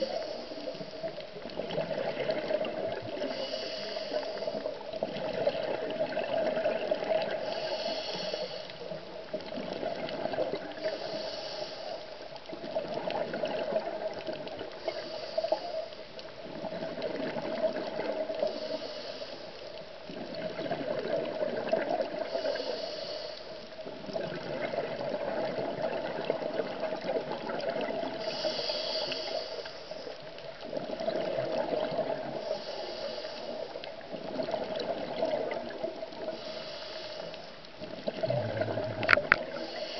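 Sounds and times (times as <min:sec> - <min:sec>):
regulator inhale hiss: 0:00.0 - 0:01.2, 0:03.2 - 0:04.9, 0:07.3 - 0:09.1, 0:10.7 - 0:12.3, 0:14.7 - 0:16.0, 0:18.4 - 0:19.8, 0:22.2 - 0:23.7, 0:28.1 - 0:30.3, 0:32.2 - 0:33.9, 0:36.2 - 0:37.6, 0:39.1 - 0:39.9
exhaled bubbles gurgling: 0:00.0 - 0:18.9, 0:19.8 - 0:39.9.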